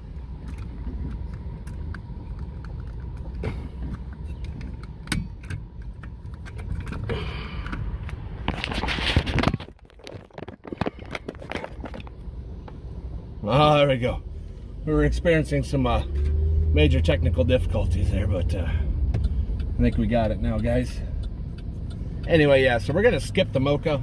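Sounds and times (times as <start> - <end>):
low vehicle rumble: 0.0 - 24.0
phone handling rubbing and clicks: 7.7 - 12.2.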